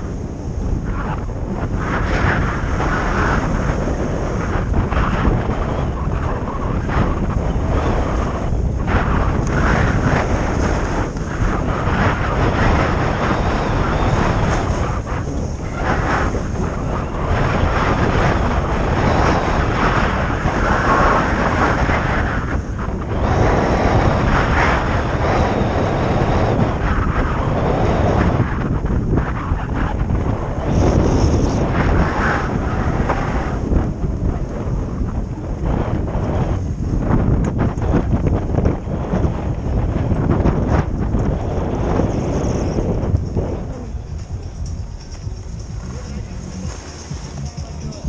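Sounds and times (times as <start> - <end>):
wind buffeting microphone: 0.0 - 48.0
skis hissing over snow: 45.9 - 47.5.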